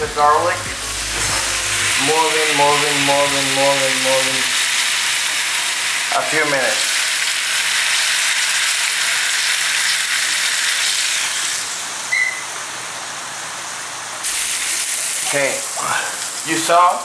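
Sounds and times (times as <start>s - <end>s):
garlic sizzling in oil: 0.8s - 17.0s
high beep: 12.1s - 12.5s.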